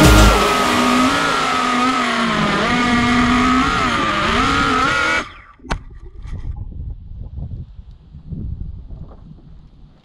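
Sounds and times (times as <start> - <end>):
drone motors whining: 0.0 - 5.7.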